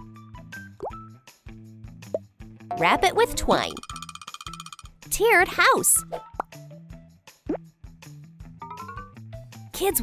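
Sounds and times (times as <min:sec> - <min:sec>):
light electronic music: 0:02.7 - 0:05.3.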